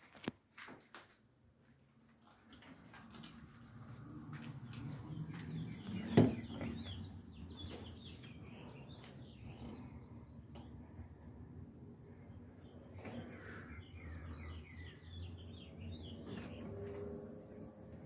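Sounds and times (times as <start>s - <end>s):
small birds chirping: 3.7s - 18.0s.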